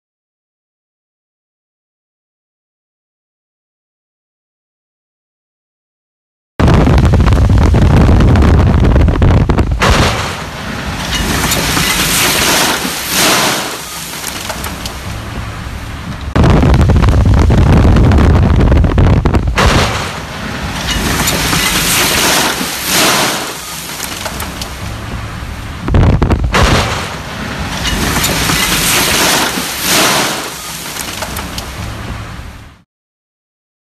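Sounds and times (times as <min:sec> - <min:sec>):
heavy low thump: 0:06.6 - 0:12.0, 0:16.0 - 0:22.0, 0:25.8 - 0:27.3
wind and road noise: 0:06.6 - 0:32.8
seed showering onto windshield: 0:07.0 - 0:26.3, 0:26.9 - 0:32.6.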